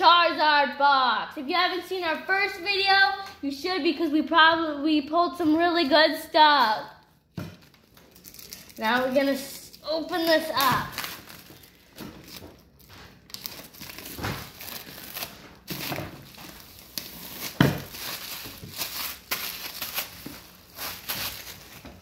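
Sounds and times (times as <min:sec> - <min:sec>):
plastic wrap crinkling: 0:07.0 - 0:22.0.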